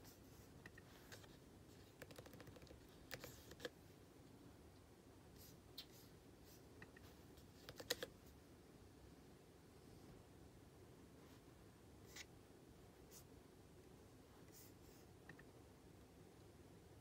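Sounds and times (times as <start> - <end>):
computer keyboard typing: 0.7 - 3.8, 7.6 - 8.1.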